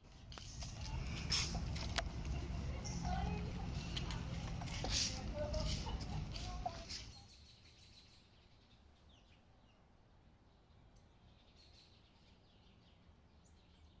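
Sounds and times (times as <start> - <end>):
outdoor park ambience: 0.0 - 14.0
faint high bird chirps: 6.7 - 9.8.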